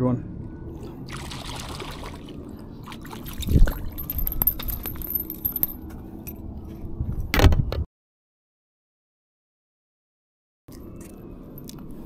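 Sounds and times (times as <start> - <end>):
fishing gear clinks and taps: 3.3 - 6.4.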